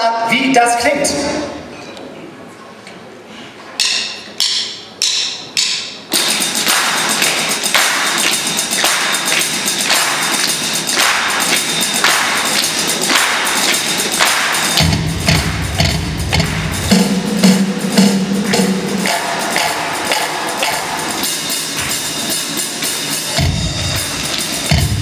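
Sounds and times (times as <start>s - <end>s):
ringing percussion strikes: 3.8s - 25.0s
bass guitar: 14.8s - 17.0s.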